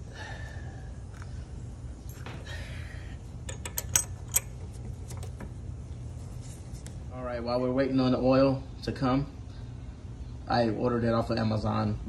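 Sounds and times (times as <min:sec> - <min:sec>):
steady low hum: 0:00.0 - 0:12.0
socket wrench metallic clicks: 0:03.5 - 0:04.6.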